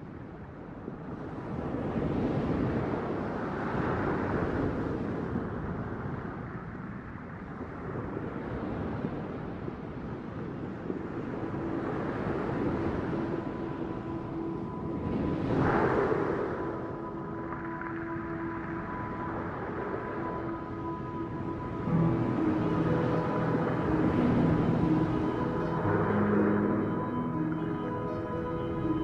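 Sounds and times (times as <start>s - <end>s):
ocean waves: 0.3s - 29.0s
faint held tones: 12.4s - 29.0s.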